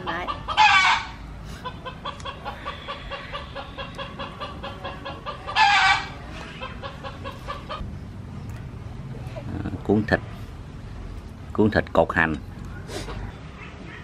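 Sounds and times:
chickens clucking: 0.0 - 7.9.

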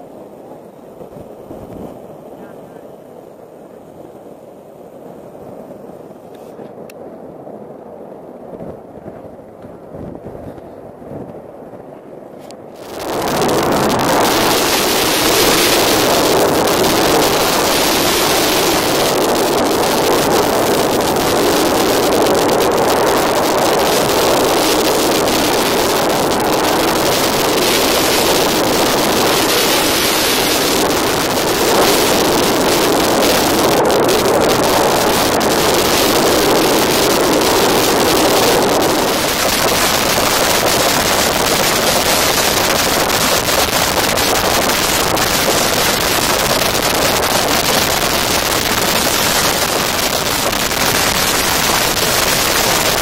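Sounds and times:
gas rushing from burst pipeline: 12.8 - 53.0.

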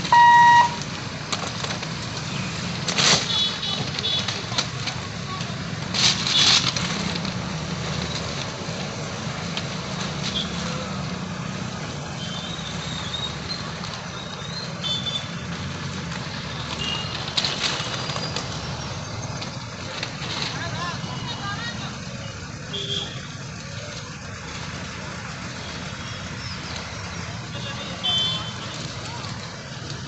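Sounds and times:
short high beeps: 0.0 - 0.8
road traffic engines running: 0.0 - 30.0.

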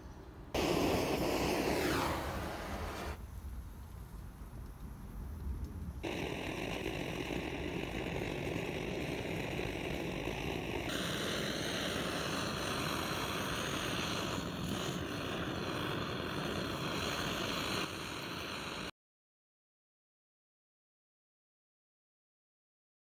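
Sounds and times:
blowtorch flame roaring hiss: 0.6 - 3.2, 5.7 - 18.9.

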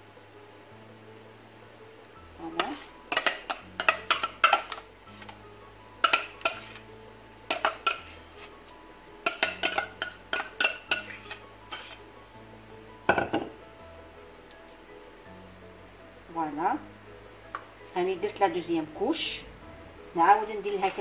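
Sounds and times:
soft background music: 0.0 - 21.0
spoon clinking and scraping bowl: 2.6 - 5.4, 6.0 - 6.8, 7.5 - 8.5, 9.2 - 12.0.

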